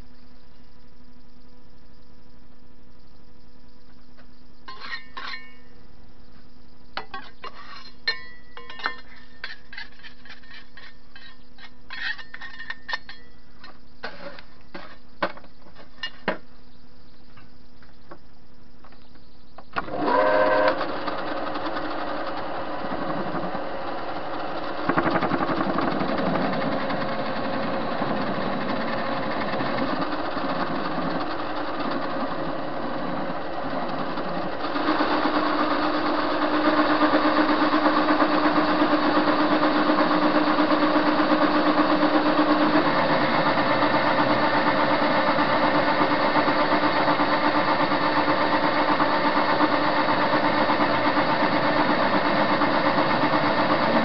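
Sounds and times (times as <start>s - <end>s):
metallic clinks of tools: 7.0s - 9.8s
lathe running: 19.8s - 54.0s.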